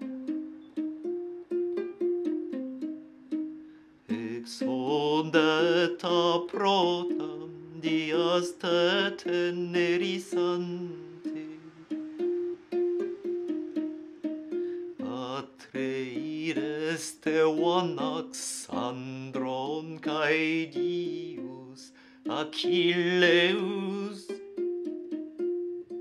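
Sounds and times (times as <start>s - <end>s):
lyre strings plucked: 0.0s - 3.8s
man singing with vibrato: 0.0s - 24.4s.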